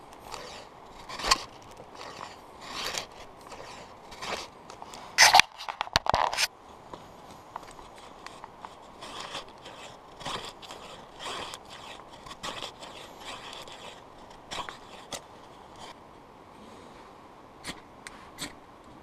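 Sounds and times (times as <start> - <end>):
knife scraping dry grass: 0.0 - 6.5, 7.7 - 16.0.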